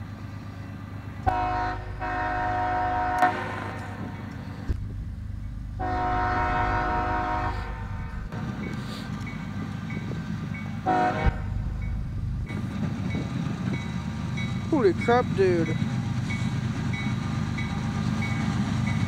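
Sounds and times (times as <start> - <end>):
train rumbling: 0.0 - 19.0
locomotive air horn blast: 1.3 - 4.3, 5.8 - 8.3, 10.8 - 11.8.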